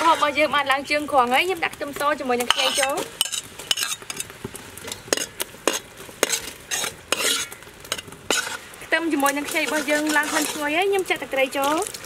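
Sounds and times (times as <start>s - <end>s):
metal spoon scraping pot: 0.0s - 0.7s, 2.4s - 4.3s, 4.9s - 8.6s, 9.2s - 10.8s
sauce sizzling: 0.0s - 12.0s.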